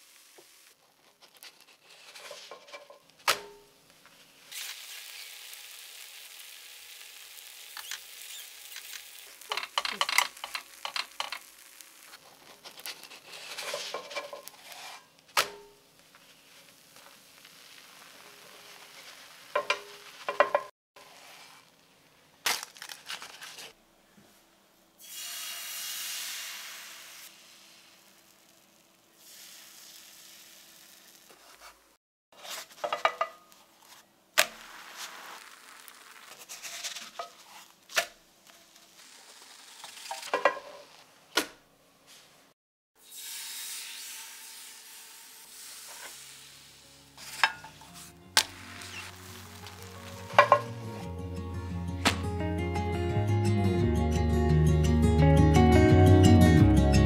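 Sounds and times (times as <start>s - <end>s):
batter sizzling in a pan: 0.0s - 21.8s, 25.0s - 32.0s, 32.7s - 41.1s, 43.0s - 51.0s
utensil scraping a pan: 0.9s - 3.6s, 8.6s - 21.7s, 32.4s - 37.8s, 38.5s - 41.1s, 47.2s - 51.1s.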